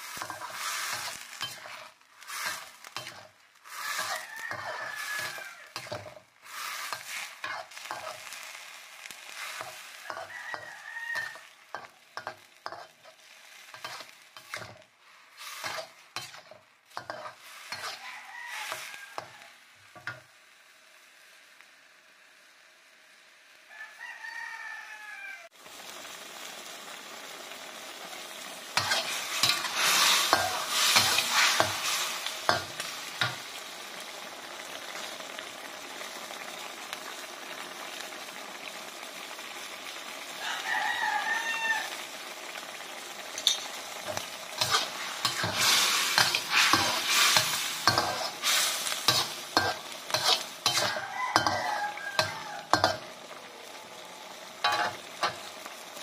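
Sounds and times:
metal spatula scraping a wok: 0:00.0 - 0:20.2, 0:28.8 - 0:33.6, 0:43.4 - 0:53.1, 0:54.6 - 0:55.5
food sizzling: 0:00.0 - 0:56.0
rooster crowing: 0:03.8 - 0:05.8, 0:10.0 - 0:11.6, 0:17.7 - 0:19.6, 0:23.7 - 0:25.5, 0:40.4 - 0:42.1, 0:50.6 - 0:53.9.

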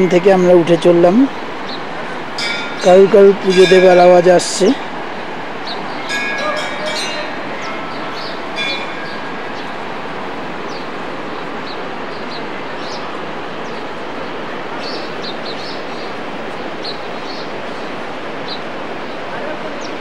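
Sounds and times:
small birds chirping: 0:00.0 - 0:03.6, 0:05.6 - 0:10.0, 0:10.6 - 0:20.0
river rushing: 0:00.0 - 0:20.0
bell ringing: 0:02.4 - 0:04.6, 0:06.0 - 0:09.9.

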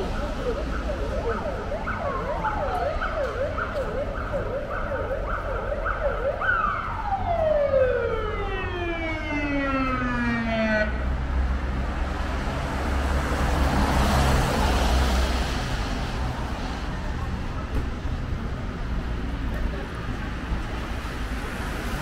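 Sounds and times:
emergency siren: 0:00.0 - 0:11.6
street traffic noise: 0:00.0 - 0:22.0.

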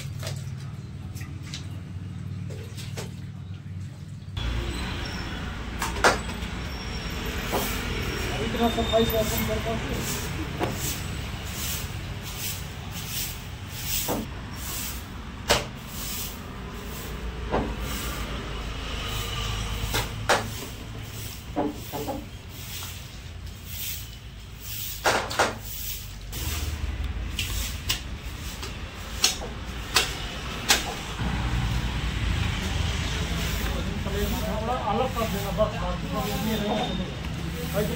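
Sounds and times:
sharp knocks and slaps: 0:15.4 - 0:15.8, 0:19.8 - 0:20.7, 0:25.0 - 0:25.6, 0:27.3 - 0:31.2.

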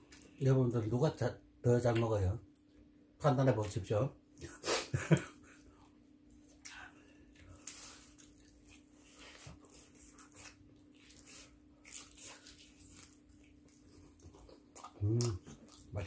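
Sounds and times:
people chewing: 0:05.1 - 0:16.0.

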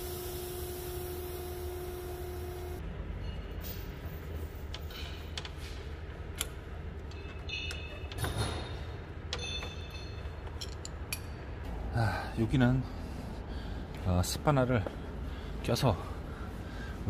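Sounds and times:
steady low hum: 0:00.0 - 0:07.7, 0:08.7 - 0:17.0
metal clinks and scrapes: 0:03.1 - 0:05.3, 0:07.1 - 0:11.5.

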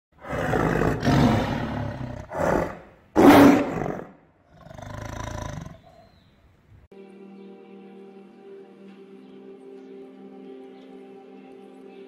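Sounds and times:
animal roars: 0:00.2 - 0:06.1.

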